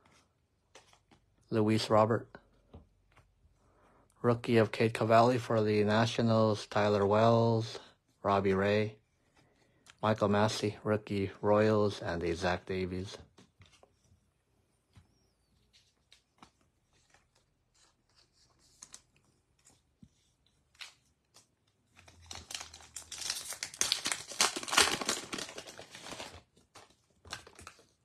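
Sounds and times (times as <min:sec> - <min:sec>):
wrapper being torn and crinkled: 0:21.9 - 0:28.0.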